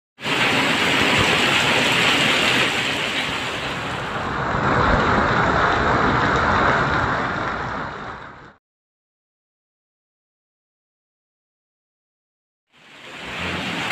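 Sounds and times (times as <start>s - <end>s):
hail and heavy rain on pavement: 0.2s - 8.1s, 12.8s - 13.9s.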